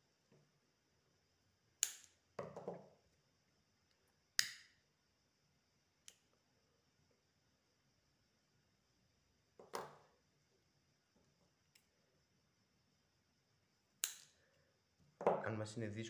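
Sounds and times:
lighter clicking: 1.8s - 2.1s, 4.4s - 4.7s, 14.0s - 14.3s.

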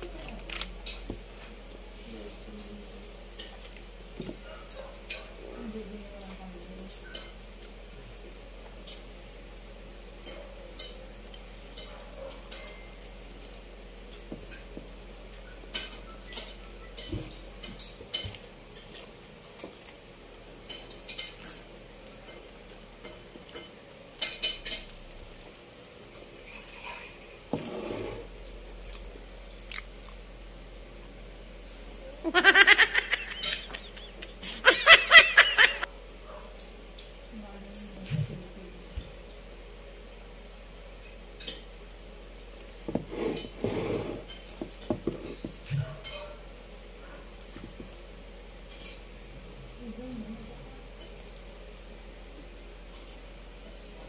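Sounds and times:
wet chewing and lip smacks: 28.8s - 30.2s.

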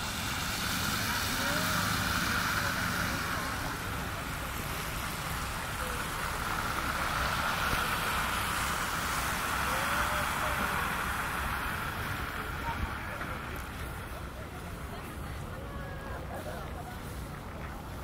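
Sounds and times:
tyres hissing on slush: 0.0s - 13.8s
cars passing: 0.0s - 18.0s.

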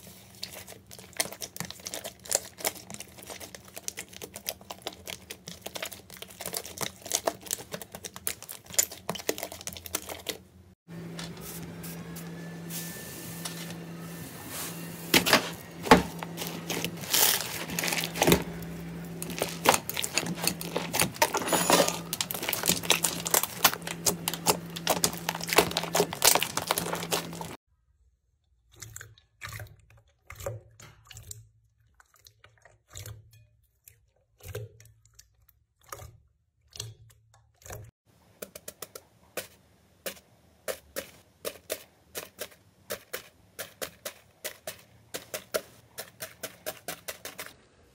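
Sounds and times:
wet slime squelches: 0.0s - 10.6s, 28.3s - 47.6s.

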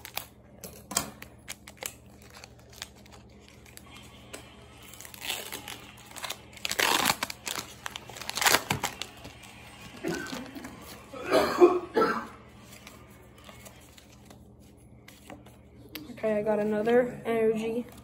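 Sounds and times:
foil wrapper crinkling and tearing: 0.0s - 0.4s, 1.2s - 11.1s.

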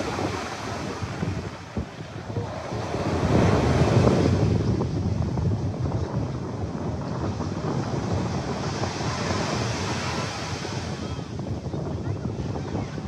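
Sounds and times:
small waves breaking on beach: 0.0s - 5.0s, 7.0s - 11.4s
wind buffeting microphone: 0.0s - 13.0s.

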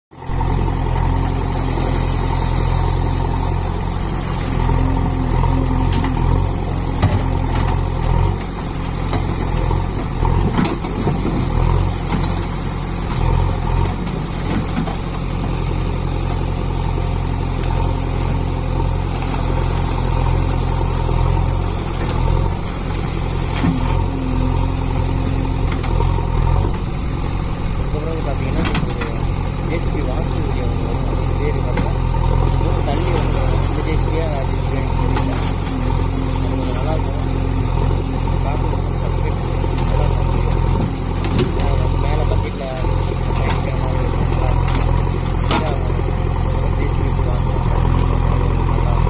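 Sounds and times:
diesel engine running: 0.1s - 49.0s
backhoe digging wet sand: 0.2s - 49.0s.

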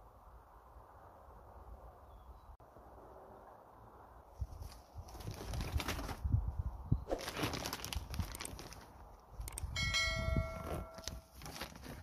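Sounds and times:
plastic mesh rustling: 7.1s - 9.0s, 11.0s - 12.0s
notification bell chime: 9.8s - 11.1s.

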